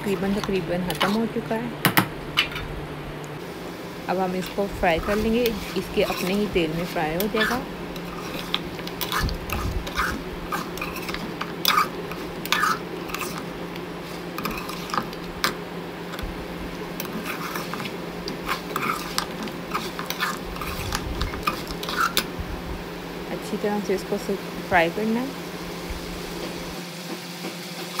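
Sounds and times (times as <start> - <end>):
metal spatula scraping pot: 0.0 - 1.4, 4.4 - 15.6, 17.0 - 22.3
low steady hum: 0.0 - 26.8
meat frying: 3.4 - 28.0.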